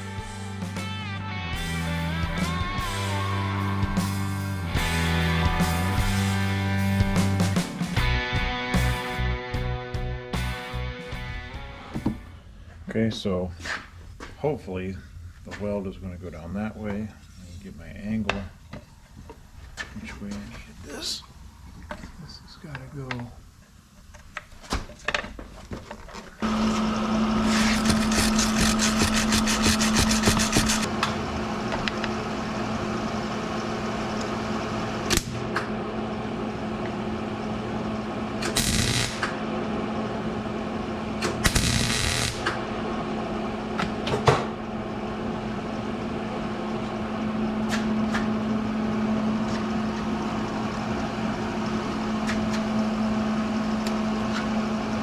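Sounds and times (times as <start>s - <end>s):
steady hum: 25.9s - 55.0s
welder arc crackling: 27.4s - 30.9s, 38.4s - 39.4s, 41.2s - 42.6s.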